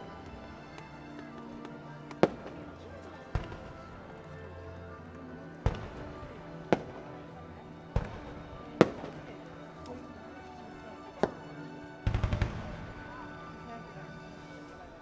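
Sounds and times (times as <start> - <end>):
music: 0.0 - 15.0
fireworks bangs: 5.6 - 7.0, 12.0 - 13.1.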